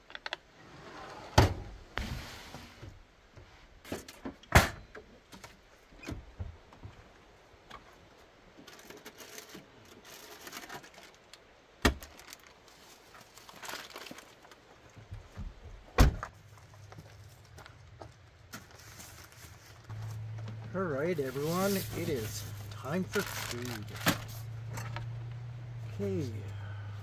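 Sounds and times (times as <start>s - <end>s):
rustling: 7.8s - 15.4s, 16.2s - 26.8s.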